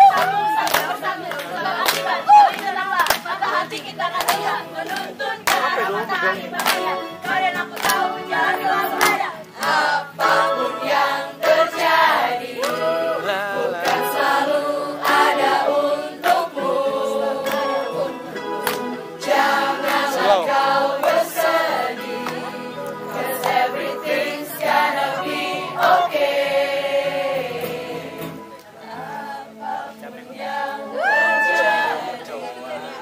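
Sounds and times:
handclaps: 0.0s - 9.8s, 12.6s - 12.9s, 13.8s - 14.3s, 17.4s - 17.8s, 18.5s - 20.2s, 21.0s - 23.7s
choir singing: 0.0s - 33.0s.

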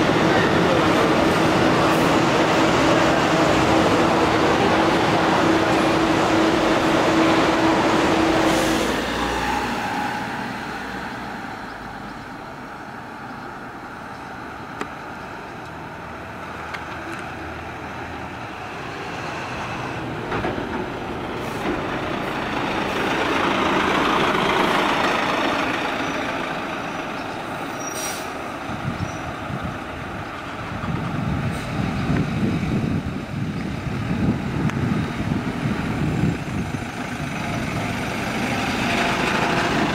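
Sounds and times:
bus engine driving away: 0.0s - 39.9s
rough pulsing engine rumble: 18.2s - 27.8s, 28.4s - 39.9s.

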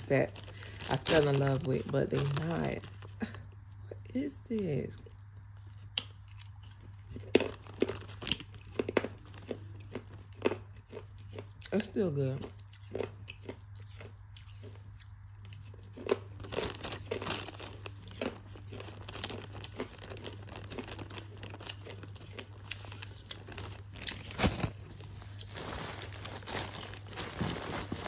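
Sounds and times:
plastic bag crinkling: 0.0s - 3.4s, 6.6s - 10.2s, 16.0s - 28.0s.

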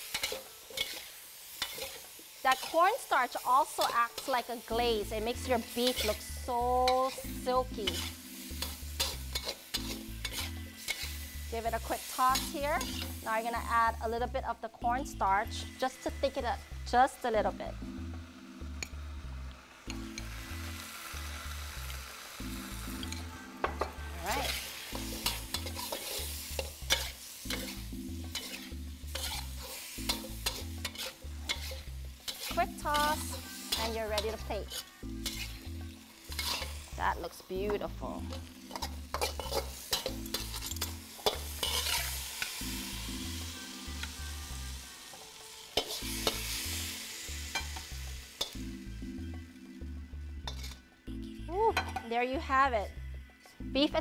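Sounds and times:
spatula scraping a wok: 0.0s - 14.0s, 19.8s - 37.5s, 38.2s - 45.2s, 45.8s - 48.7s, 50.4s - 50.9s
food sizzling: 0.0s - 54.0s.

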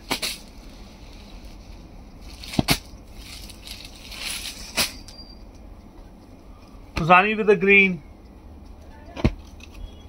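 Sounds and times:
fabric rustling: 0.0s - 5.1s.

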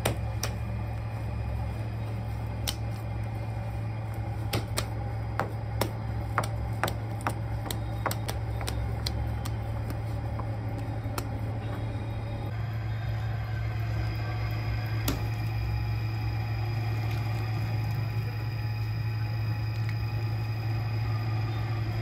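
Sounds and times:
wet clay slapped by hand: 0.0s - 0.6s, 2.6s - 2.9s, 4.5s - 10.0s
low machine hum: 0.0s - 22.0s.

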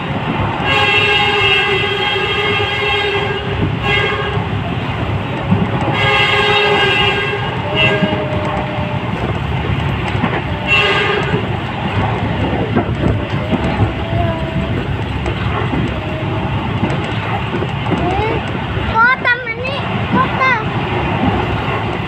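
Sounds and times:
clacks over rail joints: 0.0s - 22.0s
train wheels rumbling on rails: 0.0s - 22.0s
train horn blast: 0.6s - 4.7s, 5.9s - 9.5s, 10.3s - 11.7s.

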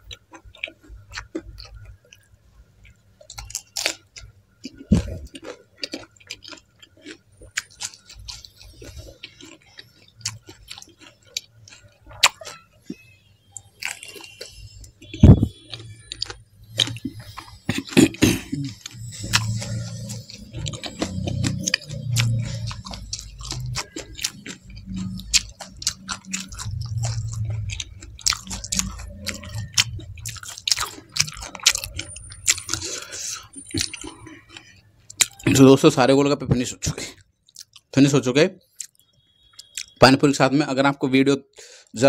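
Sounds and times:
chewing with full mouth: 0.0s - 35.6s, 37.0s - 37.9s, 38.7s - 40.0s.

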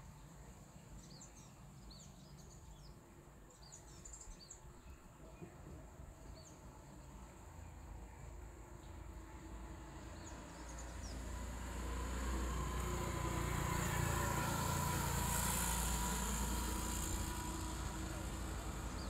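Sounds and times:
vehicle passing by: 9.1s - 19.0s.

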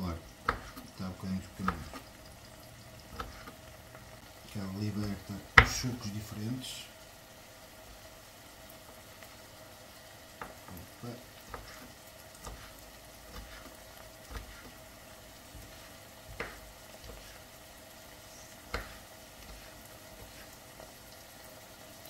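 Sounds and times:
knife chopping on wooden board: 0.4s - 0.9s, 1.6s - 2.1s, 3.1s - 3.6s, 11.5s - 14.7s, 15.6s - 17.4s, 18.7s - 19.7s.

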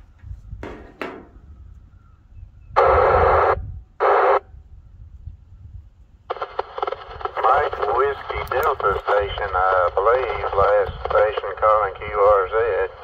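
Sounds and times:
radio static bursts: 2.8s - 4.4s, 6.3s - 13.0s.

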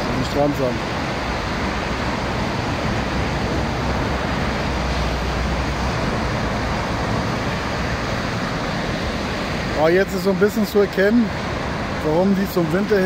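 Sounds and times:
waves breaking on beach: 0.0s - 13.0s.

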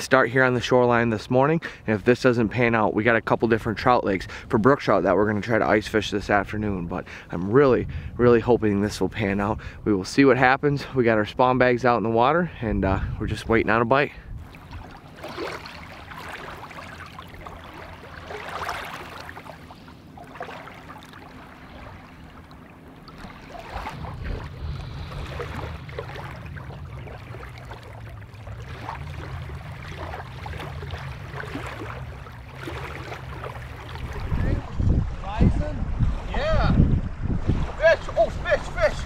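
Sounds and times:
wind rumble on microphone: 3.6s - 10.6s, 12.6s - 15.4s, 23.1s - 39.0s
waves lapping on gravel: 14.4s - 35.0s.

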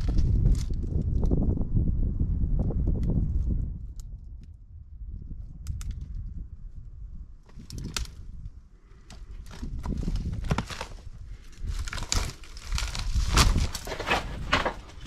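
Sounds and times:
wind rumble on microphone: 0.0s - 15.0s
footsteps crunching over rubble: 9.1s - 15.0s.

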